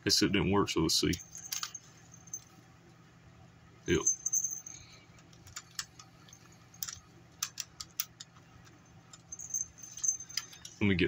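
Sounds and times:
small jingle bells jingling: 1.1 - 2.6, 3.9 - 7.7, 8.7 - 11.0.

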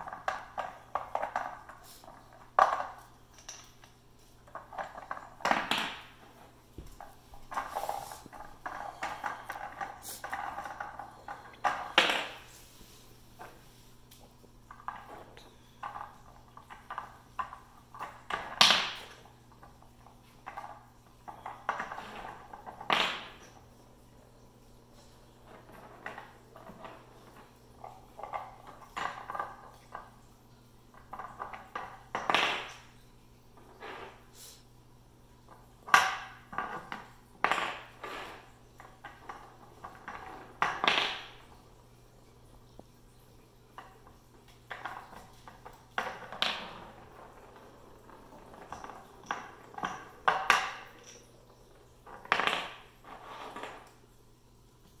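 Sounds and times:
puzzle pegs knocking and clattering: 4.5 - 12.5, 30.9 - 33.0, 35.5 - 41.6, 43.7 - 53.9
plastic pegs clacking and rattling: 7.0 - 12.5, 14.7 - 23.7, 43.7 - 54.0.

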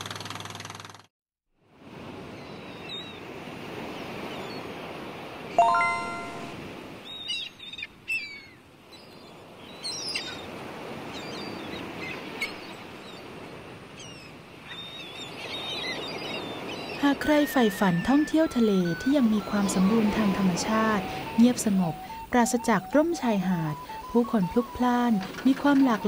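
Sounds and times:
bright ringing chime: 5.6 - 6.6
birds chirping: 14.0 - 26.0.

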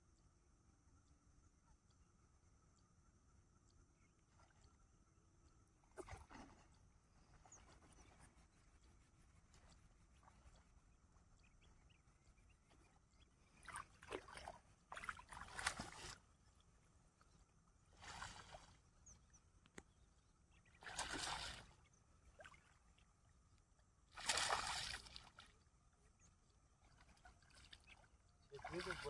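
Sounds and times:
water splashing and sloshing: 5.7 - 29.0.

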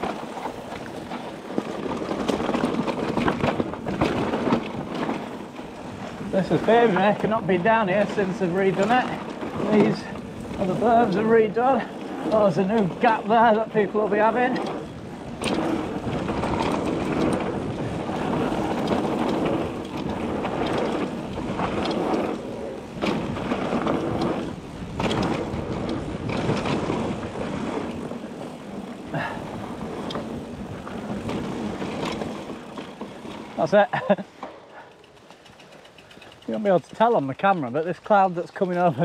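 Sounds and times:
bike knocks and rattles: 0.0 - 39.0
bike tyres rushing on dirt: 0.0 - 39.0.

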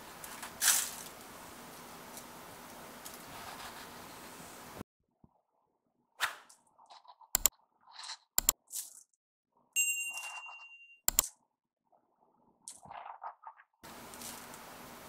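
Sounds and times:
sharp mouse clicks: 8.4 - 8.6, 11.1 - 11.3
bright bell ding: 9.8 - 11.0.

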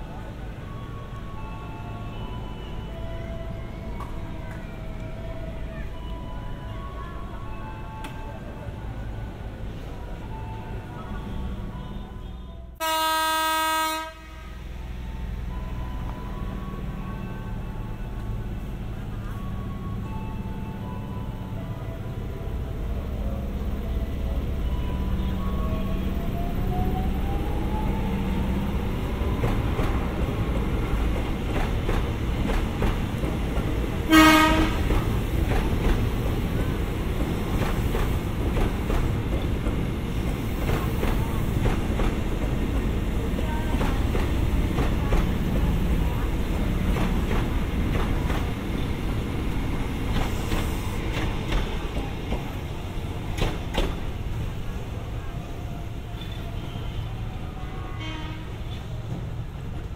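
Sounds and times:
train low rumble: 0.0 - 59.9
train horn blast: 11.4 - 14.8, 34.1 - 35.0, 56.2 - 58.9
train wheels clacking: 29.1 - 54.6.

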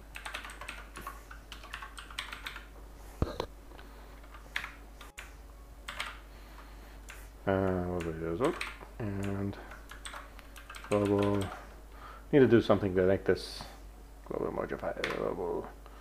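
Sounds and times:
computer keyboard typing: 0.0 - 2.7, 4.2 - 11.6, 15.0 - 15.3
person's voice: 7.4 - 9.7, 10.9 - 11.7, 12.3 - 15.8.

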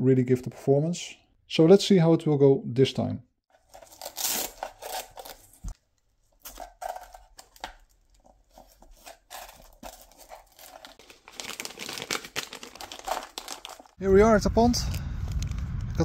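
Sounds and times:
rustling and crinkling: 3.5 - 14.0.

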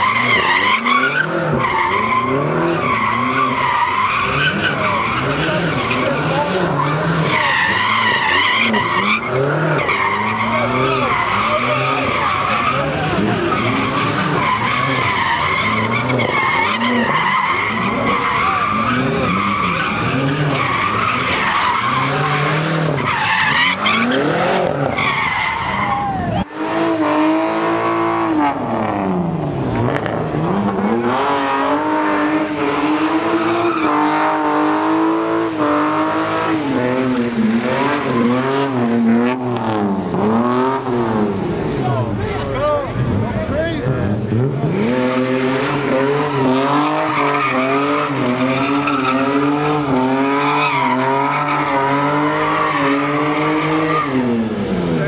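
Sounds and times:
tyres screeching: 0.0 - 26.5, 42.4 - 55.0
car engine revving high: 0.0 - 55.0.

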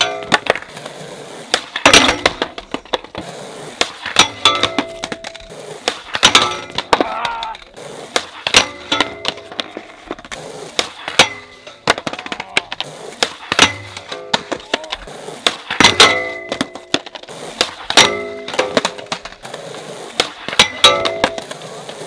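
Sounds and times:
skateboard clacks and slaps: 0.0 - 22.0
metal rail ringing: 20.6 - 21.4.

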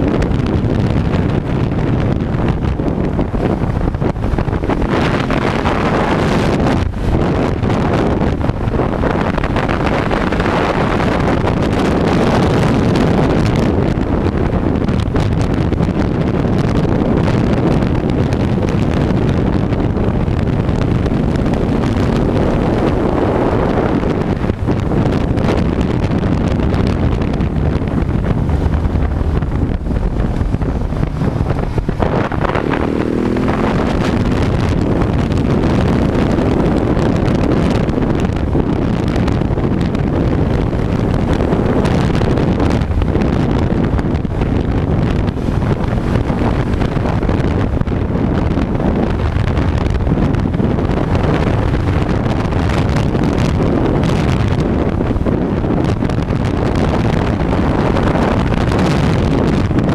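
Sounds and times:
motorcycle engine running: 0.0 - 59.9
wind buffeting microphone: 0.0 - 59.9.

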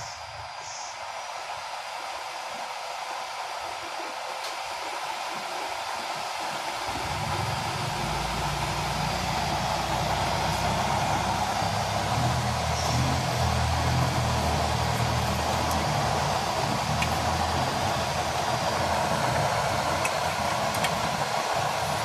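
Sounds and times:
blower fan rushing air: 0.0 - 22.0
low rumble: 6.9 - 22.0.

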